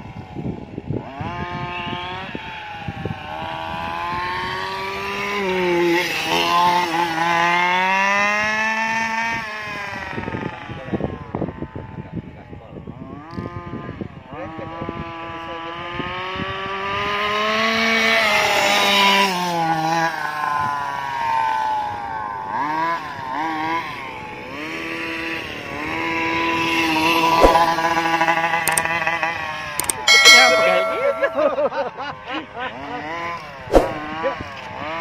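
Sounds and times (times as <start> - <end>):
sharp click: 28.7 - 28.9, 29.8 - 31.4.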